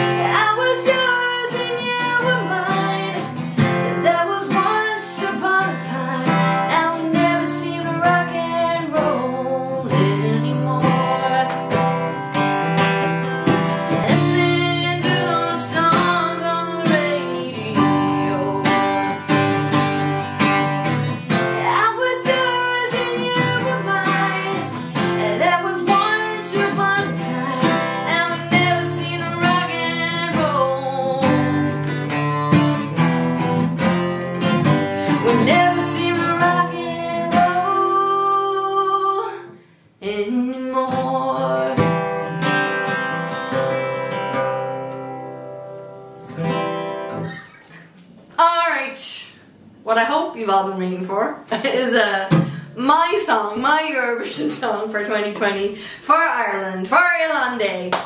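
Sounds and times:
woman singing: 0:00.0 - 0:12.2, 0:13.9 - 0:32.0, 0:34.4 - 0:42.1, 0:51.8 - 0:57.9
strummed acoustic guitar: 0:00.0 - 0:48.5, 0:51.5 - 0:55.6.

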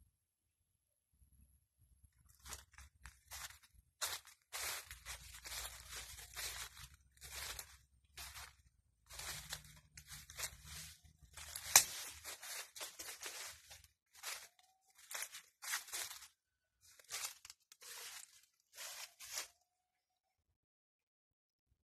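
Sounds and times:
footsteps crunching dry leaves: 0:02.3 - 0:19.6
sharp twig crack: 0:11.4 - 0:12.2.

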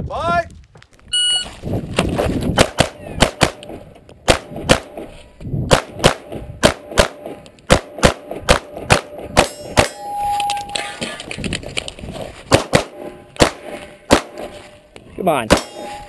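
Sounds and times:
shot timer beep: 0:01.1 - 0:01.5
pistol firing quickly: 0:12.5 - 0:14.4.

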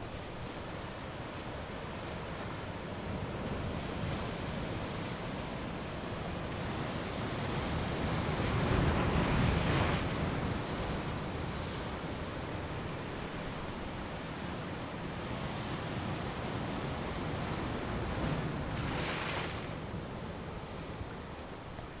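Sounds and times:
ocean waves breaking on rocks: 0:00.0 - 0:22.0.

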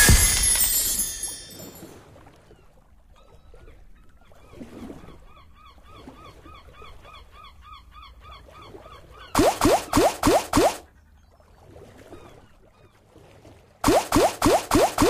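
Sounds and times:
win jingle: 0:00.0 - 0:01.9.

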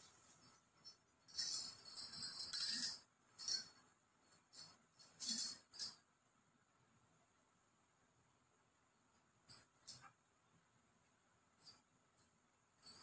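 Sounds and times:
bangles jingling: 0:00.0 - 0:06.1, 0:09.4 - 0:10.1, 0:11.6 - 0:13.0.

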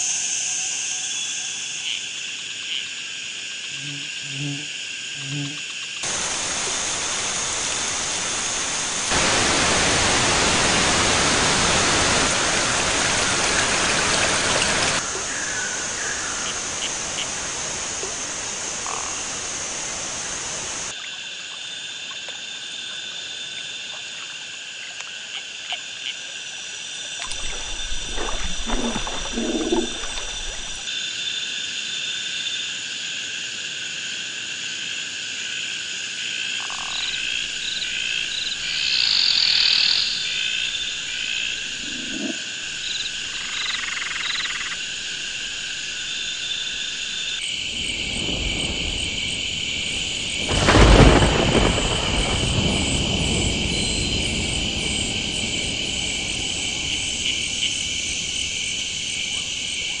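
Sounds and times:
dense insect chorus: 0:00.0 - 1:00.0
high insect trilling: 0:36.6 - 0:46.6.

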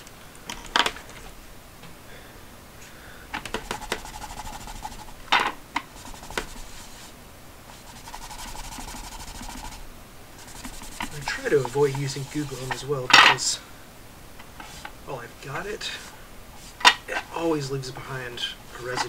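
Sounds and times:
cloth rubbing on plastic: 0:03.5 - 0:05.2, 0:05.9 - 0:09.8, 0:10.4 - 0:13.1, 0:14.6 - 0:15.0, 0:15.8 - 0:17.0.

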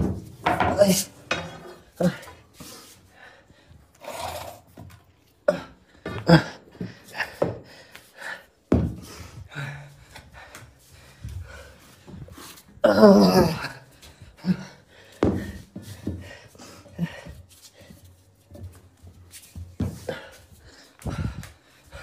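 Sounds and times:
man grunting: 0:00.7 - 0:02.4, 0:12.8 - 0:13.8
man panting and gasping: 0:00.8 - 0:04.8, 0:05.4 - 0:18.2, 0:19.8 - 0:22.0.

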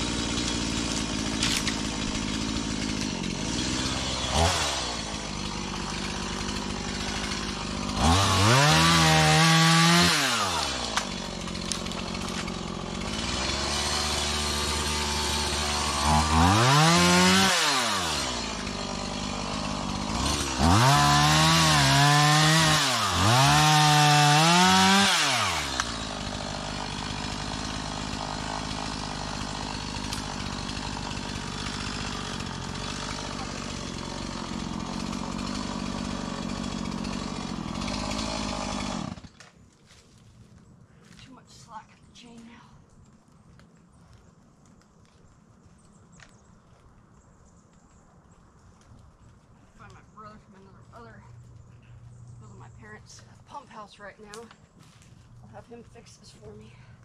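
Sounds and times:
chainsaw revving and idling: 0:00.0 - 0:40.0.

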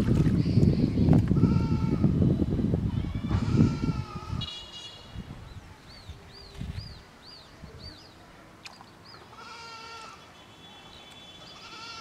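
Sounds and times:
goat bleating: 0:09.4 - 0:10.2, 0:11.6 - 0:12.0.

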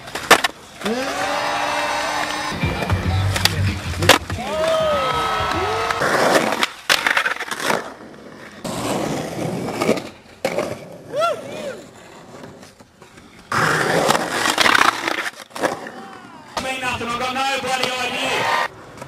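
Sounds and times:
skateboard clacks: 0:00.0 - 0:19.0
skateboard wheels rolling on concrete: 0:00.0 - 0:19.0
people calling out: 0:00.8 - 0:06.3.

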